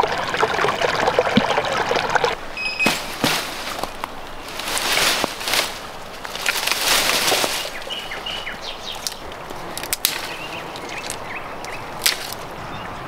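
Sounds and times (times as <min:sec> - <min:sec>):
branches cracking: 0:02.8 - 0:12.5
brushwood rustling and crackling: 0:02.8 - 0:12.6
small birds chirping: 0:06.6 - 0:12.0.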